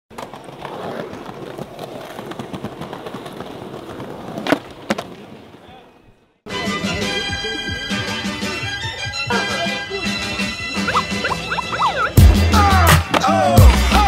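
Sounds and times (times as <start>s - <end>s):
skateboard clacks: 0.1s - 5.7s
skateboard rolling over pavement: 0.1s - 6.2s.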